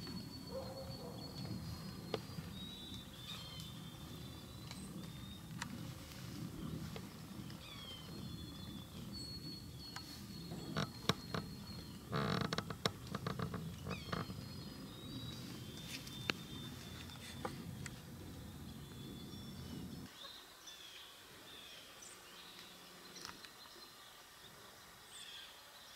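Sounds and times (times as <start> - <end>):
low steady rumble: 0.0 - 20.1
high bird calls: 0.0 - 21.0.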